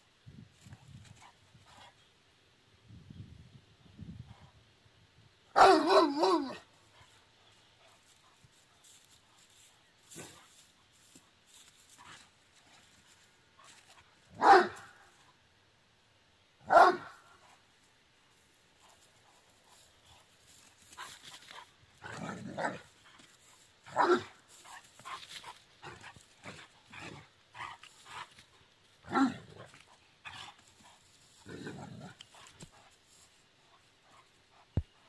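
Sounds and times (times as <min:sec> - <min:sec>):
dog barking: 0:05.6 - 0:06.6, 0:14.4 - 0:15.0, 0:16.7 - 0:17.2, 0:23.9 - 0:24.4.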